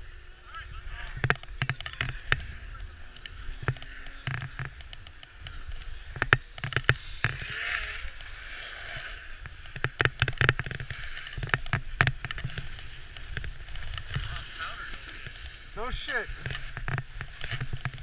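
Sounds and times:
sharp clicks and knocks: 0:01.1 - 0:02.5, 0:03.1 - 0:07.5, 0:09.4 - 0:14.3, 0:15.2 - 0:18.0
snowboard scraping on snow: 0:02.1 - 0:18.0.

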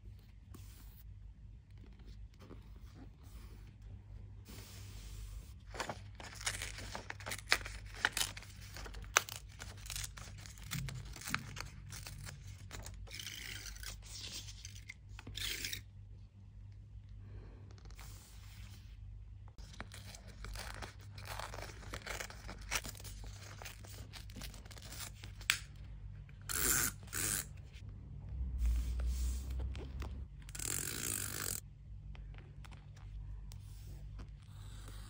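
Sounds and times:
paper rustling and scraping: 0:04.8 - 0:15.3, 0:19.6 - 0:25.5.

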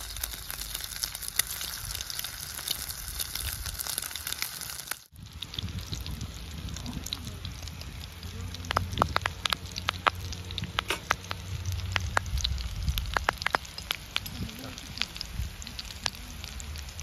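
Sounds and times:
oil sizzling with pops: 0:00.0 - 0:17.0
low steady rumble: 0:05.1 - 0:17.0.

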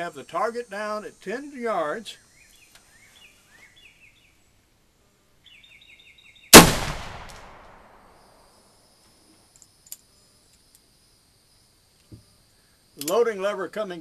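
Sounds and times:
revolver gunshot: 0:06.5 - 0:08.0.

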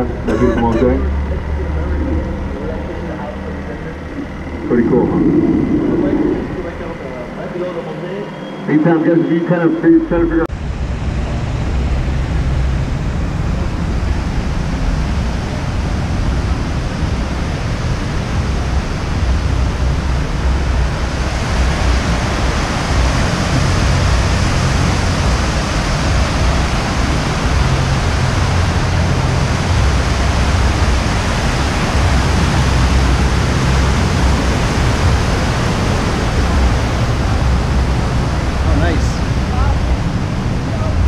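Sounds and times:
low rumble: 0:00.0 - 0:08.6, 0:10.0 - 0:41.0
water rushing down fountain cascade: 0:13.4 - 0:41.0.

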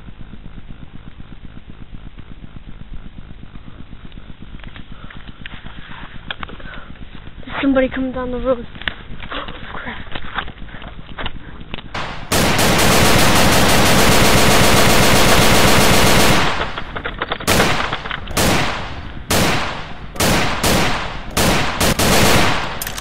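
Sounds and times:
machine-gun fire: 0:12.0 - 0:23.0.

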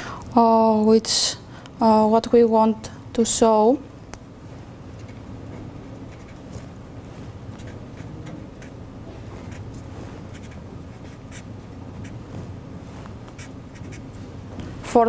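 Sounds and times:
pen scratching on paper: 0:05.0 - 0:06.8, 0:07.6 - 0:08.8, 0:09.4 - 0:12.2, 0:13.3 - 0:14.1.

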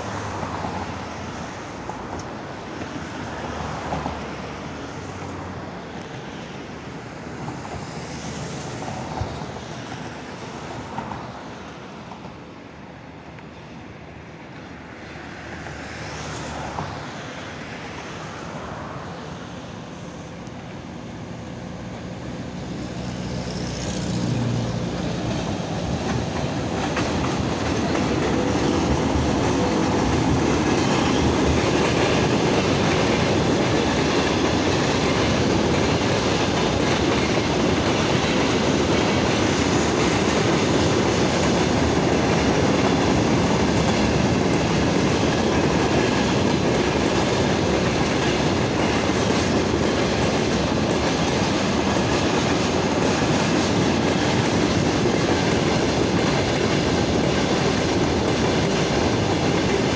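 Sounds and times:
electric locomotive passing: 0:00.0 - 0:59.9
freight wagons rumbling on rails: 0:21.4 - 0:59.9.

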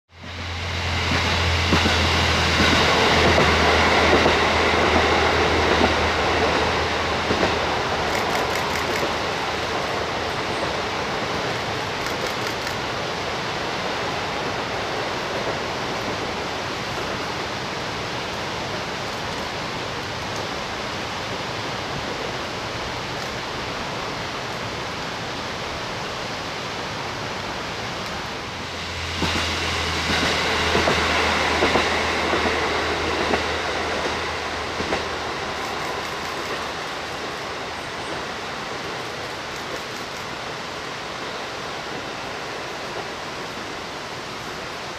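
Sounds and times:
low engine drone: 0:00.1 - 0:09.2, 0:28.2 - 0:38.1
train wheels rumbling on track: 0:00.1 - 0:44.9.

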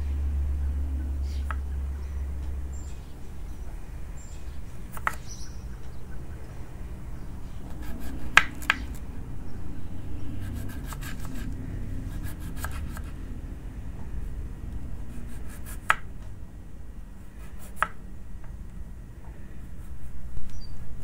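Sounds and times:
low steady hum: 0:00.0 - 0:21.0
knife chopping on wooden board: 0:07.8 - 0:09.0.

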